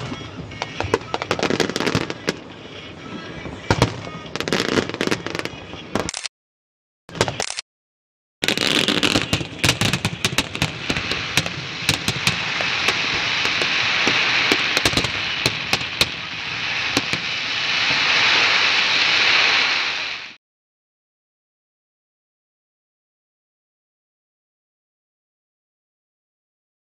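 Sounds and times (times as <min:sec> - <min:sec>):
fireworks crackling: 0:00.0 - 0:06.2, 0:07.1 - 0:07.6, 0:08.4 - 0:20.4
firework shell bursts: 0:08.4 - 0:20.4.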